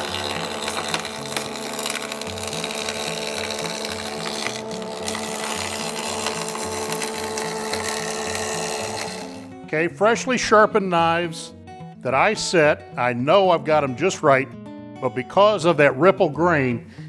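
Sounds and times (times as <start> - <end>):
jointer cutting wood: 0.0 - 9.8.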